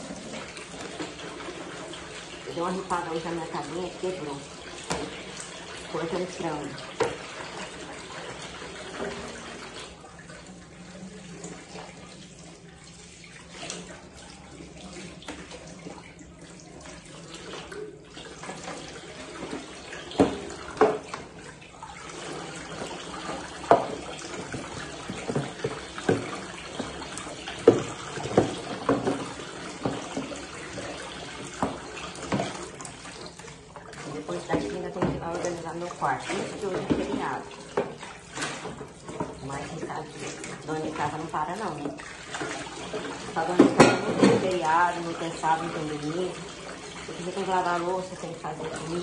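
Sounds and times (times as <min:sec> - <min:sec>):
tap running into sink: 0:00.0 - 0:10.0, 0:16.6 - 0:21.5, 0:22.1 - 0:44.8
dishes clinking: 0:43.6 - 0:44.4.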